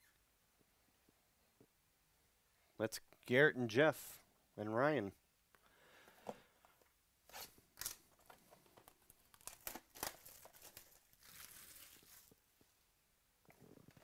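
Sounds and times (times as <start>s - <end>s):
cardboard tearing: 9.1s - 12.4s.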